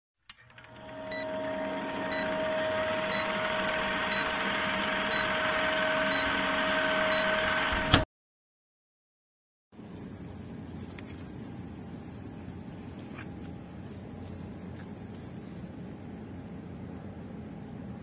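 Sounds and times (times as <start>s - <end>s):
film projector whirring: 0.3s - 8.0s.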